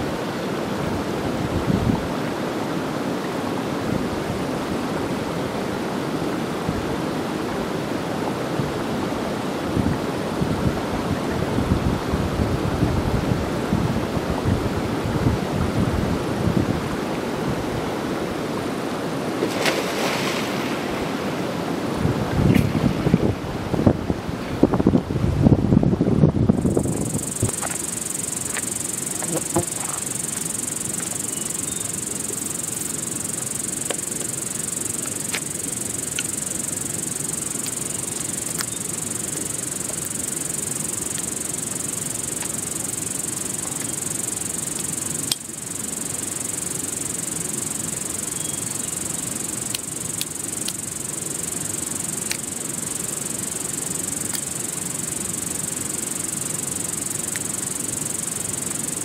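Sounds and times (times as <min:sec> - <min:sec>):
constant high hiss: 0:00.0 - 0:59.0
blade clicking on branch: 0:27.0 - 0:45.5, 0:49.5 - 0:51.0, 0:51.6 - 0:52.7.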